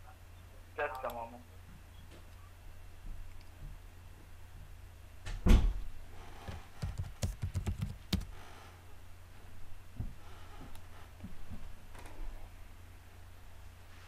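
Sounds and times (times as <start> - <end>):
computer keyboard typing: 6.8 - 8.4.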